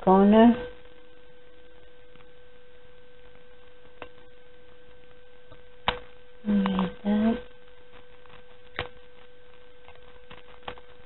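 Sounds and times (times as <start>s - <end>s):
steady background hum: 0.0s - 11.0s
short vocal sound: 6.4s - 7.4s.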